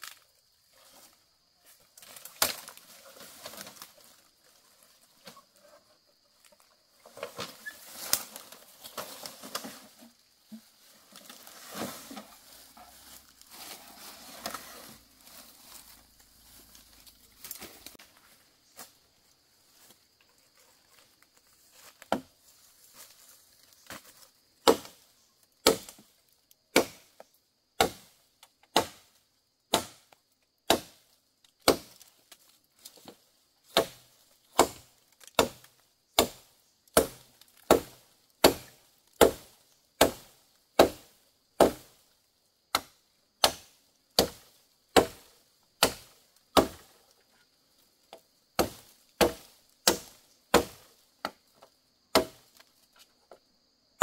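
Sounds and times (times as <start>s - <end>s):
wood being chopped: 2.2s - 2.8s, 24.6s - 25.0s, 25.6s - 26.0s, 26.7s - 27.1s, 27.8s - 29.1s, 29.7s - 30.1s, 30.7s - 31.0s, 31.6s - 32.0s, 33.7s - 42.0s, 42.7s - 46.9s, 48.6s - 51.4s, 52.1s - 52.4s.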